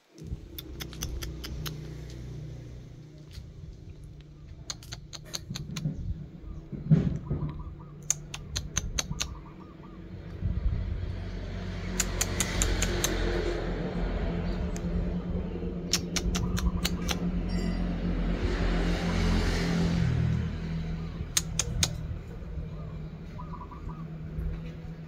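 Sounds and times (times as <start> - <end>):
sharp ticks: 0.2 - 2.3, 3.4 - 5.9, 8.0 - 9.4, 11.9 - 13.3, 15.9 - 17.3, 21.3 - 22.1.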